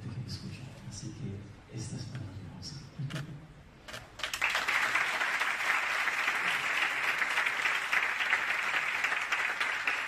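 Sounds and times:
audience applause: 4.2 - 10.0.

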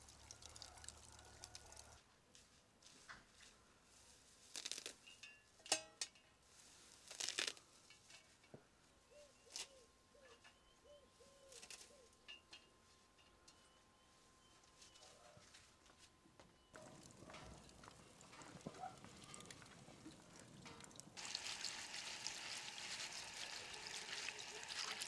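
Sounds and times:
herb stems snapping and rustling: 4.5 - 5.0, 7.0 - 7.6, 11.5 - 11.9
faint bird chirps: 9.1 - 12.5, 13.4 - 15.4.

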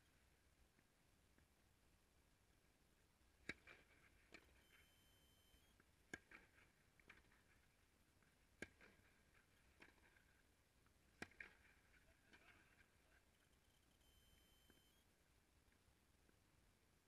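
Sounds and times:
short high beep: 13.5 - 15.0.

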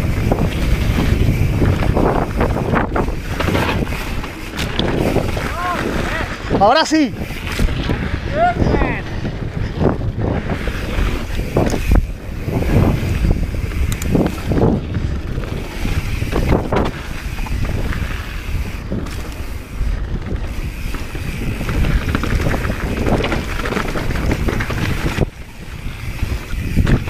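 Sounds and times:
bike knocks and rattles: 0.0 - 8.2, 9.0 - 27.0
tyres rumbling on dirt: 0.0 - 27.0
wind rushing over microphone: 0.0 - 27.0.

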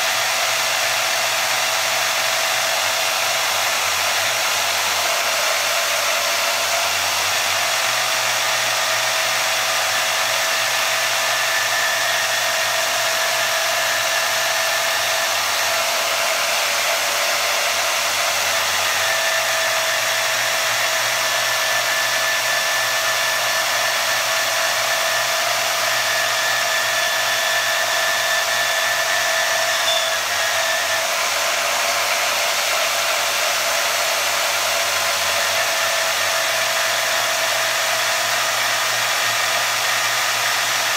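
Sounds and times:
band saw motor whine: 0.0 - 40.9
saw cutting wood: 0.0 - 40.9.

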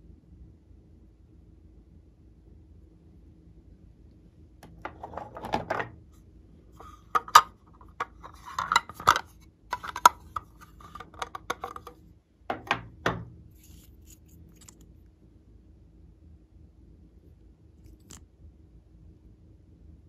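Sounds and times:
hard plastic clicks and knocks: 7.2 - 13.3.

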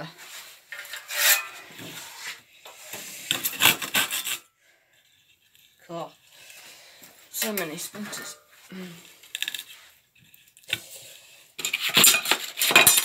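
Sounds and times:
handsaw rasping through wood: 3.3 - 4.4.

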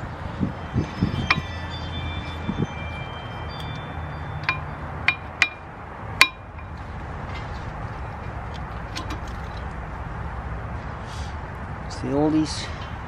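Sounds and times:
sharp metallic clinks: 0.0 - 6.8.

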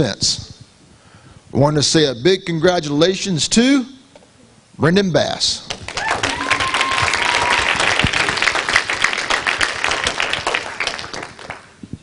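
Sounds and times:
audience applauding: 5.7 - 11.8.

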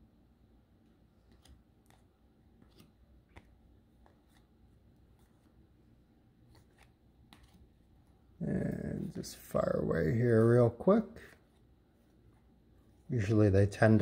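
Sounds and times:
cards being flipped: 0.8 - 10.5.

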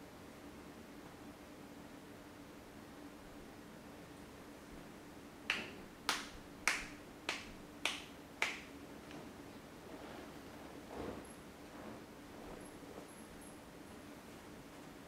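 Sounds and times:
hand slaps on skin: 5.5 - 8.7.

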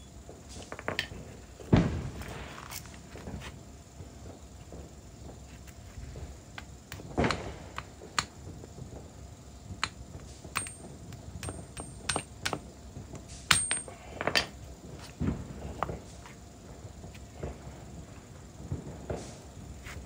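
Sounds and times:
sharp metallic clicks and taps: 9.8 - 12.6.

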